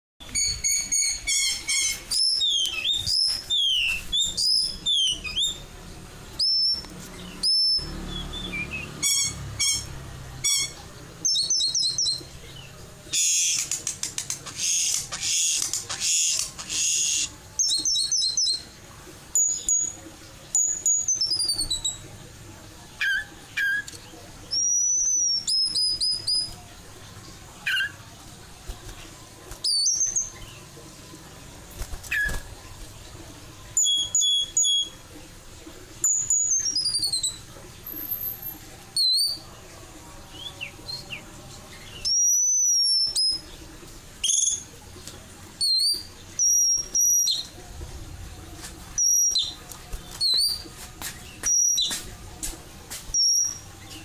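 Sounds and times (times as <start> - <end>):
bird whistled calls: 0.4 - 5.6, 6.4 - 6.8, 7.4 - 12.2, 45.6 - 47.5, 49.0 - 49.6.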